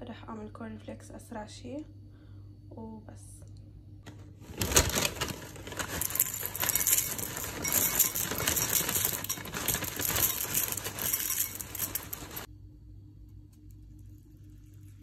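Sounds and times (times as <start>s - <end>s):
plastic bag crinkling: 4.1s - 12.5s
cereal rattling into a bowl: 4.4s - 12.5s.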